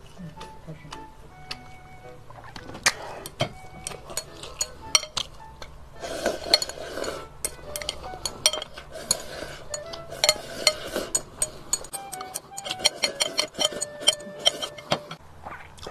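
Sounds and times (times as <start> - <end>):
faint background music: 0.0 - 15.9
noisy eating: 2.3 - 15.9
chopsticks clicking against glass bowl: 3.2 - 15.2.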